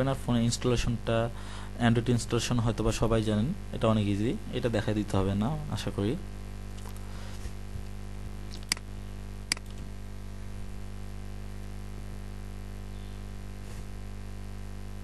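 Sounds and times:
steady low hum: 0.0 - 15.0
computer mouse clicks: 8.5 - 8.9, 9.5 - 9.9.

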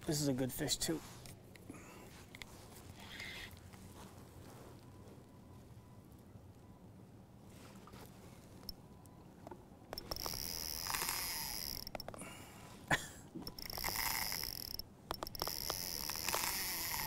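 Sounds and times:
fishing reel drag buzzing: 9.9 - 12.1, 13.4 - 17.0
reel clicks: 9.9 - 12.2, 13.4 - 17.0.

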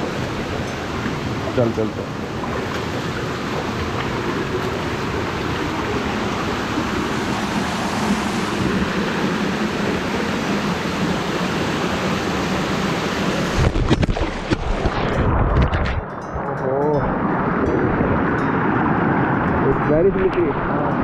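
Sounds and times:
waterfall rushing over rocks: 0.0 - 15.5
knocks and thumps on camera: 13.6 - 16.0.

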